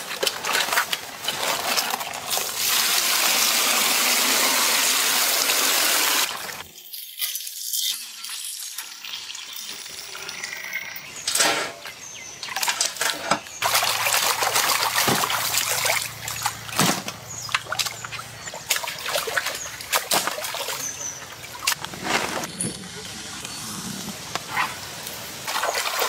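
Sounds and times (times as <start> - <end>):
water splashing in metal basin: 12.4 - 21.8, 25.4 - 26.0.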